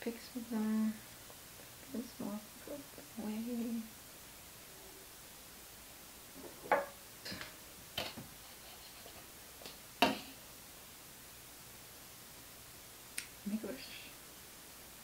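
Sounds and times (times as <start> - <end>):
plate and knife knocking on table: 6.5 - 7.0, 10.0 - 10.3.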